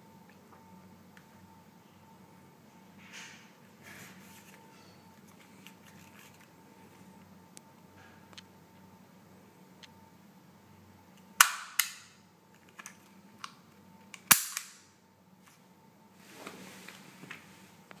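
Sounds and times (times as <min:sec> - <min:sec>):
pistol slide metallic snaps: 0:14.2 - 0:14.8.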